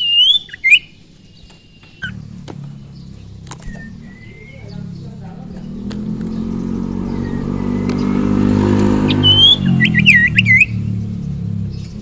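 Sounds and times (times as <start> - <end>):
bird whistling: 0.0 - 12.0
vehicle engine passing: 2.0 - 12.0.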